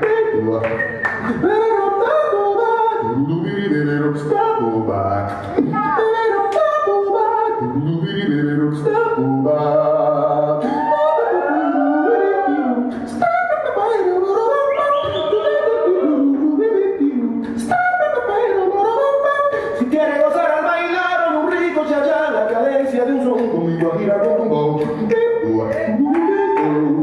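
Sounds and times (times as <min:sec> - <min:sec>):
dance music with singing: 0:14.6 - 0:16.5.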